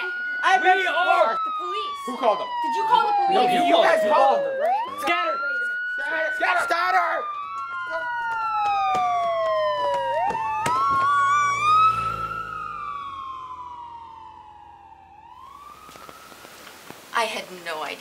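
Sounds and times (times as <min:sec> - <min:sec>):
police siren wailing: 0:00.0 - 0:16.8
second siren sweeping: 0:00.0 - 0:16.9
sharp knocks: 0:10.2 - 0:11.2.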